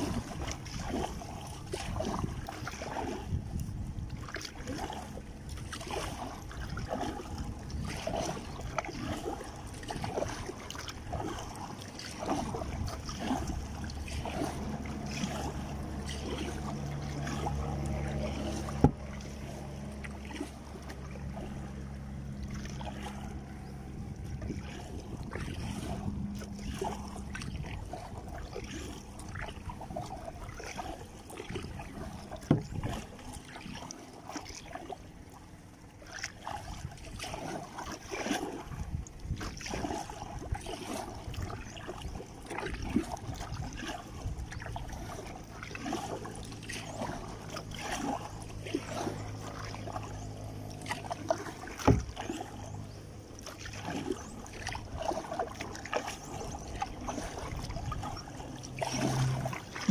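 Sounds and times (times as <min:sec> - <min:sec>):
paddle splashing water: 0:00.0 - 0:59.9
low hum: 0:10.4 - 0:33.5.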